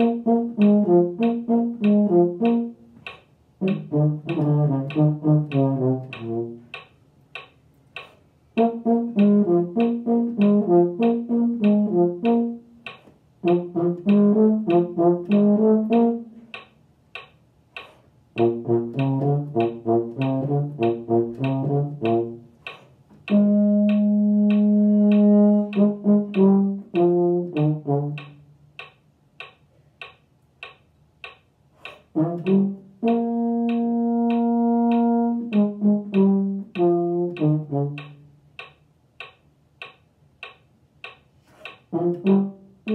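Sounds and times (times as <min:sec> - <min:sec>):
euphonium playing: 0:00.0 - 0:03.0, 0:03.6 - 0:06.7, 0:08.6 - 0:12.8, 0:13.4 - 0:16.5, 0:23.3 - 0:28.4, 0:32.2 - 0:38.3.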